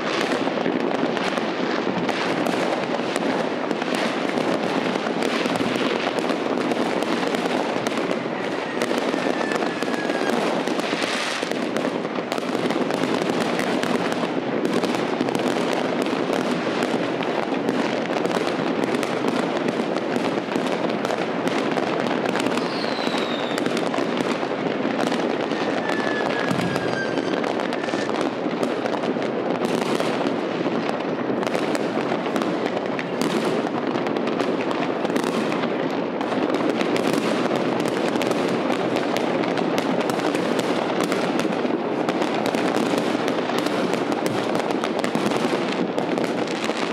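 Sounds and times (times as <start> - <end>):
fireworks bangs and crackling: 0.0 - 46.9
descending firework whistles: 8.0 - 11.6, 22.5 - 23.8, 25.3 - 28.2.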